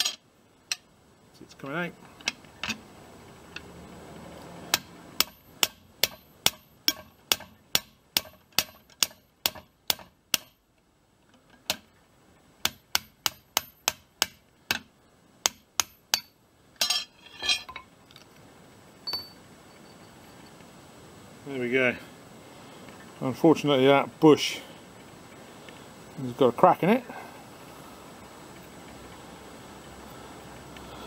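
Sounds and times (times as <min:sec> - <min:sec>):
hammer striking steel bar: 0:04.7 - 0:10.6, 0:12.6 - 0:17.6
metallic clatter: 0:16.2 - 0:18.2.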